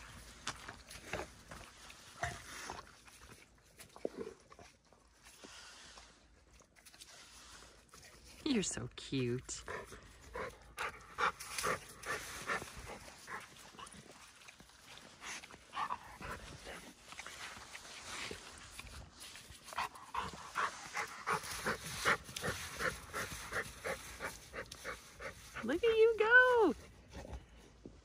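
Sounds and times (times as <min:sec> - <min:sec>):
dog panting: 0:09.6 - 0:13.9, 0:19.7 - 0:25.8.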